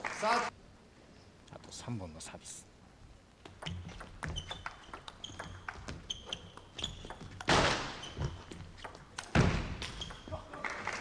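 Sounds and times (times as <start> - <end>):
table tennis ball clicking: 3.4 - 7.5.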